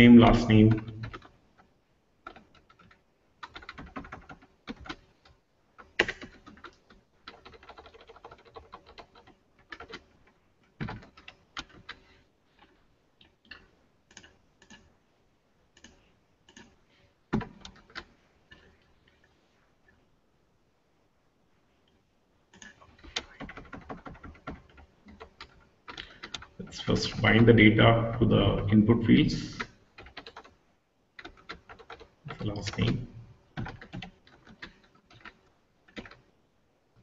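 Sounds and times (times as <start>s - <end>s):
computer keyboard typing: 0.7s - 12.0s, 13.5s - 14.9s, 15.8s - 16.7s, 17.3s - 18.8s, 22.5s - 27.3s, 29.4s - 30.6s, 31.2s - 36.3s.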